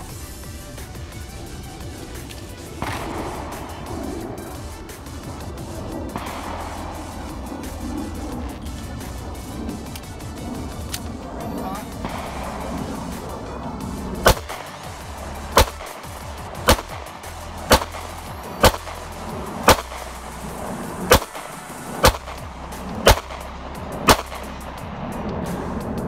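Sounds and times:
pistol shots: 0.8s - 11.2s, 11.8s - 24.8s.

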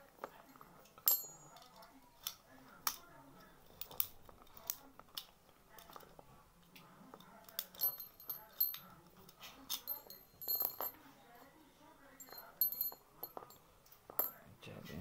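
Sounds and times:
metal keys jingling: 7.4s - 9.0s, 9.6s - 11.4s.

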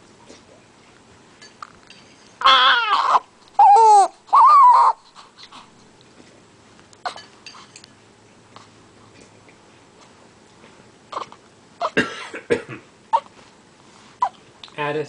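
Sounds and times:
newborn baby crying: 2.4s - 5.2s, 11.1s - 12.0s, 13.1s - 13.4s.

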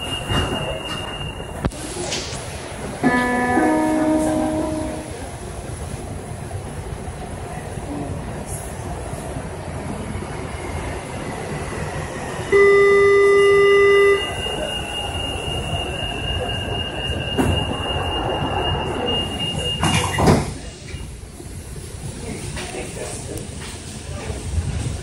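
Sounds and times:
train equipment rumbling: 0.0s - 25.0s
thin high tone: 3.0s - 5.3s.

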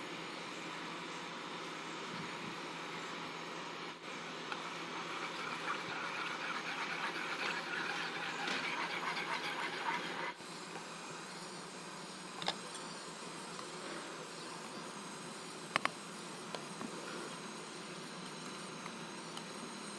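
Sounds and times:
steady hiss: 0.0s - 19.9s
metal spoon stirring in a pan: 4.9s - 10.4s.

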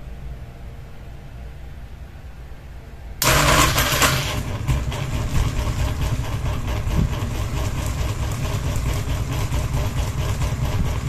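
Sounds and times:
ceiling fan hum: 0.0s - 11.0s
fan rattling and knocking: 3.2s - 11.0s.

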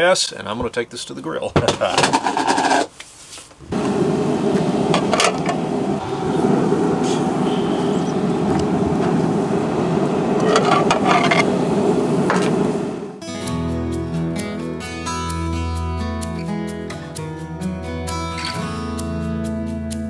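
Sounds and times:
outdoor rumble: 3.7s - 13.2s
acoustic guitar music: 13.2s - 20.0s.

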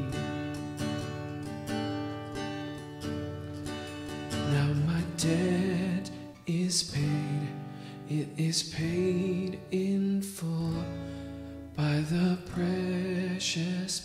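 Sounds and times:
man singing: 0.0s - 0.7s, 4.2s - 14.0s
guitar playing: 0.0s - 14.0s.

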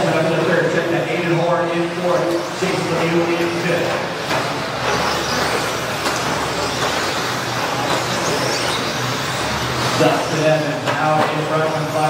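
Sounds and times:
electric toy trucks racing: 0.0s - 12.0s.

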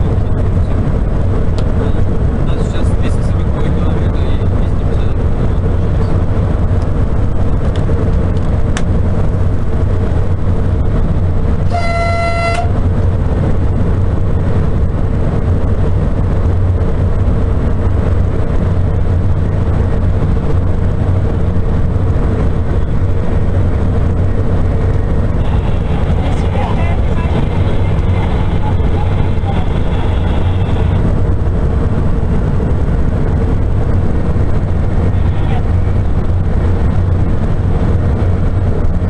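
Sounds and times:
high-speed train rumble: 0.0s - 39.0s
train horn toot: 11.6s - 12.8s.

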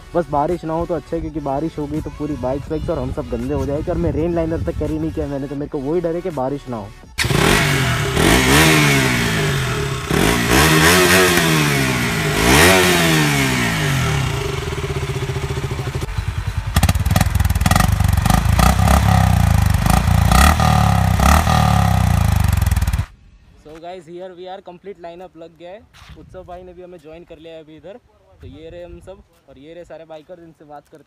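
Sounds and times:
motorcycle engine revving: 7.2s - 23.1s
motorcycle idling: 7.2s - 23.1s.

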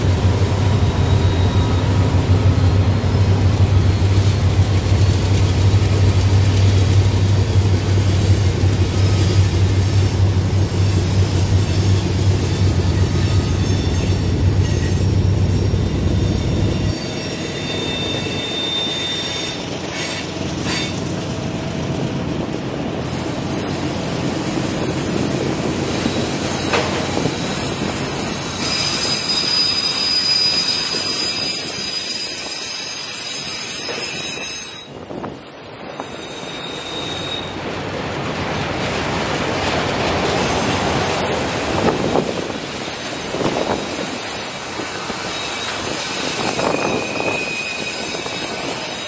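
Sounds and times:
diesel locomotive drone: 0.0s - 49.0s
wheel flange squeal: 0.6s - 4.3s, 10.8s - 21.0s, 23.6s - 37.6s, 42.8s - 49.0s.

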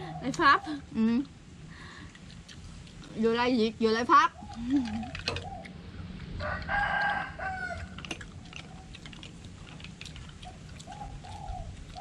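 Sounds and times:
rooster crowing: 6.4s - 8.0s.

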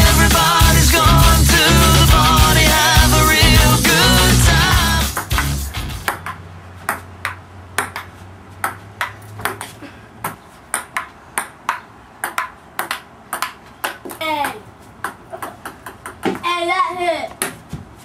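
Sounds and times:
ping-pong ball clicking: 5.2s - 16.4s.

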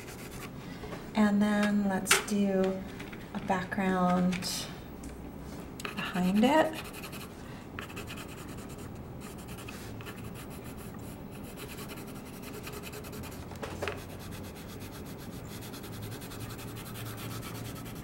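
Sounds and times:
colored pencil scratching on paper: 0.0s - 0.5s, 5.9s - 18.0s.

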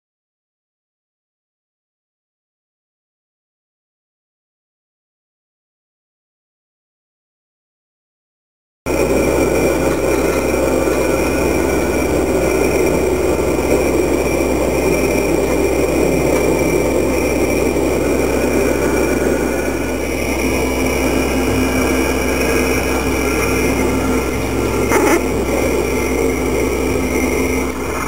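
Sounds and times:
motor hum and whine: 8.9s - 28.0s.

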